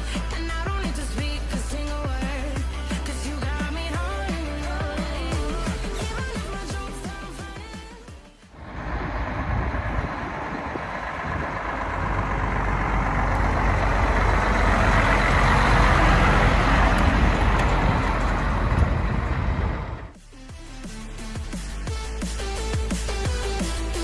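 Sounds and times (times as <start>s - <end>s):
truck diesel engine passing: 8.5s - 20.2s.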